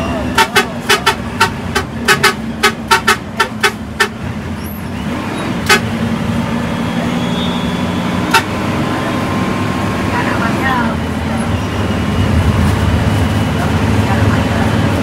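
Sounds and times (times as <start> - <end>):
bus horn tooting: 0.0 - 6.2, 6.8 - 9.4
bus engine drone: 0.0 - 15.0
road noise: 0.0 - 15.0.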